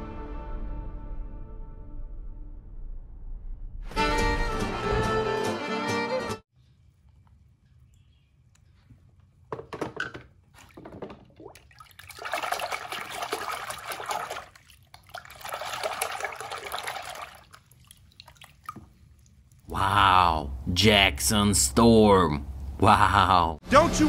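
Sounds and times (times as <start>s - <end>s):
film music: 3.9s - 6.4s
hand splashing water in a tub: 10.3s - 19.7s.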